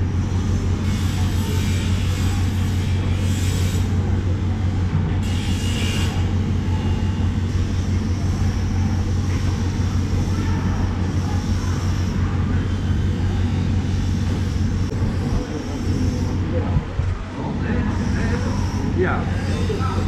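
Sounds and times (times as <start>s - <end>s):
low machine hum: 0.0s - 20.0s.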